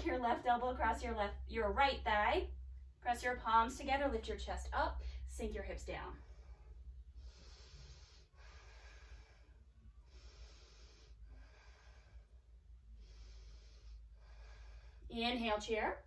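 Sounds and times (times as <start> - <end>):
woman breathing faintly: 6.1 - 15.1.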